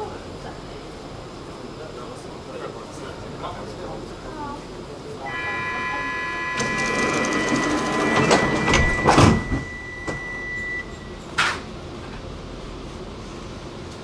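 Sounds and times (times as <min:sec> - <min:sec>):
door-closing warning tone: 0:05.3 - 0:11.4
sliding doors knocking shut: 0:06.6 - 0:10.3.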